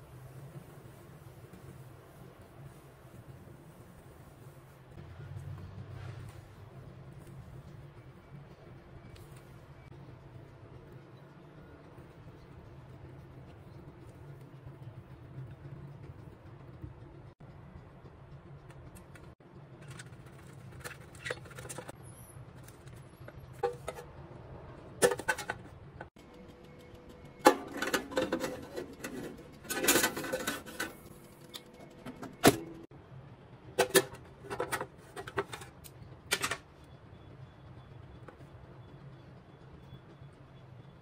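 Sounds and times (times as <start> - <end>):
metal baking tin clattering: 23.6 - 24.1, 25.0 - 25.7, 27.5 - 31.0, 33.8 - 36.6.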